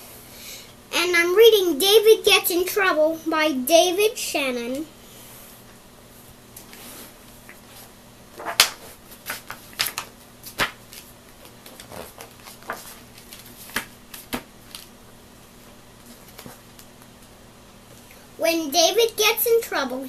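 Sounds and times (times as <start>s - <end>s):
paper pages rustling: 7.6s - 14.9s, 16.0s - 17.3s.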